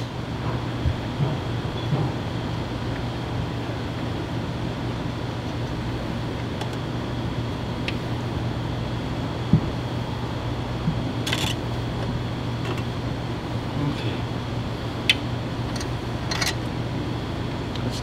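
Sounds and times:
machine hum: 0.0s - 18.0s.

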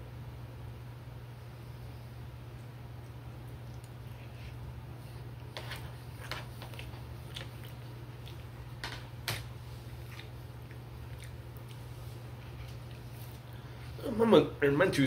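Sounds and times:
chewing: 2.6s - 13.7s
fork scraping on a plate: 5.5s - 6.8s.

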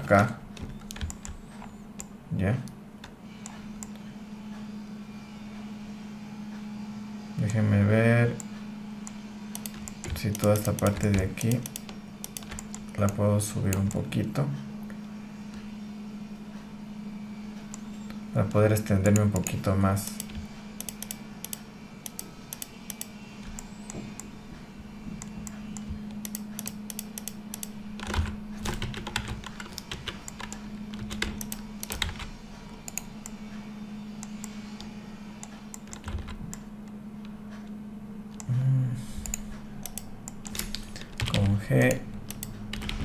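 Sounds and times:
low electrical hum: 0.0s - 43.0s
keyboard and mouse clicking: 0.6s - 2.8s, 9.0s - 14.0s, 19.0s - 24.3s, 25.2s - 33.4s, 34.2s - 37.4s, 39.2s - 43.0s.

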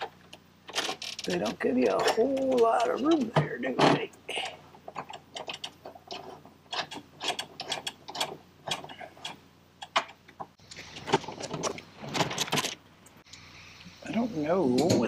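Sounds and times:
metal parts knocking: 4.9s - 12.8s.

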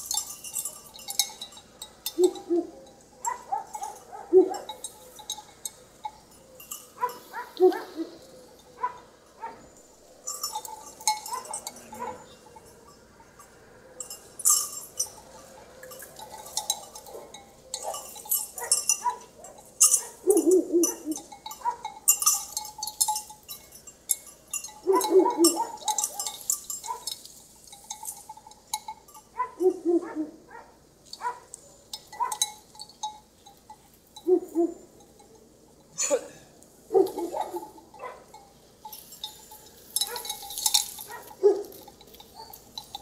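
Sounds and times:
light metallic clinking: 0.0s - 43.0s.

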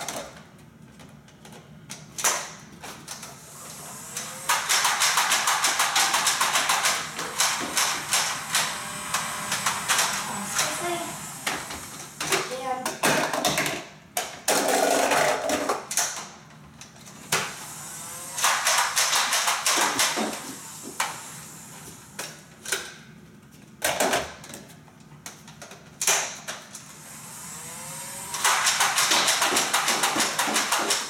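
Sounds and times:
toy blaster firing darts: 4.2s - 12.4s, 18.2s - 21.2s, 28.2s - 31.0s.

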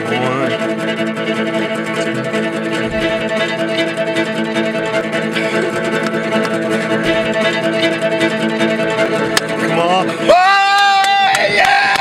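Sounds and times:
bowed strings holding chord: 0.0s - 12.0s
plucked guitar: 0.0s - 12.0s.

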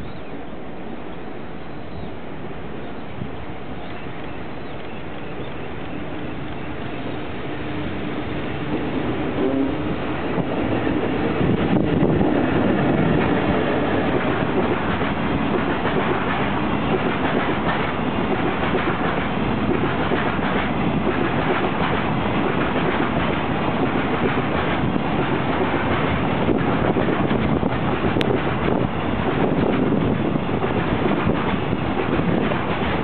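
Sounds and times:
electric locomotive passing: 0.0s - 33.0s
train wheels rumbling on rails: 1.0s - 33.0s.

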